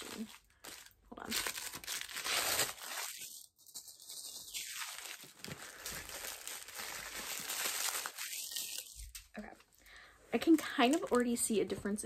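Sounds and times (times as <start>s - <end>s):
packaging crinkling and rustling: 0.0s - 9.7s.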